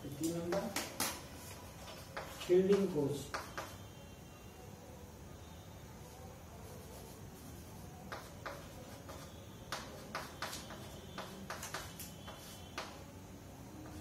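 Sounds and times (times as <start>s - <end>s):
chalk tapping on a chalkboard: 0.2s - 3.9s, 6.8s - 13.1s.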